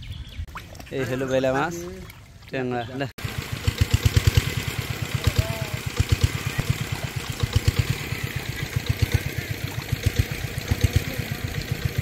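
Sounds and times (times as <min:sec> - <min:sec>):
small engine chugging: 0:03.2 - 0:12.0.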